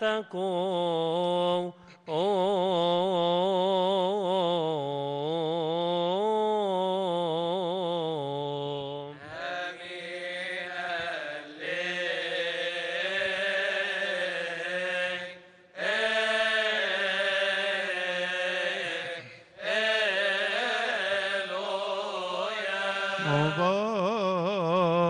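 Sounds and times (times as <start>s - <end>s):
man chanting: 16.7s - 25.0s.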